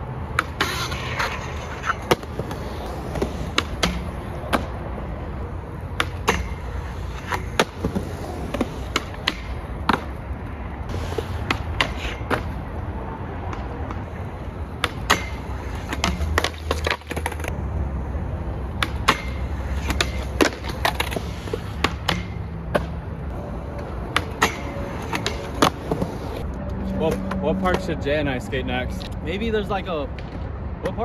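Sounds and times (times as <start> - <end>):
skateboard wheels rolling on concrete: 0.0 - 31.0
skateboard popping and landing: 0.3 - 5.0, 5.7 - 10.3, 10.9 - 12.7, 13.4 - 17.6, 18.7 - 26.4
skateboard hitting metal handrail: 3.1 - 4.7, 6.0 - 10.1, 14.8 - 17.4, 24.1 - 26.1.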